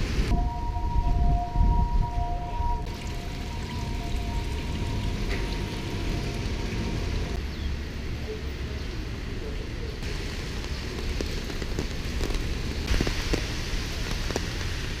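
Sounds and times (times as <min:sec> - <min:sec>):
rain on wet street: 0:00.0 - 0:00.3, 0:02.8 - 0:07.4, 0:10.0 - 0:15.0
traffic hiss and rumble: 0:00.0 - 0:15.0.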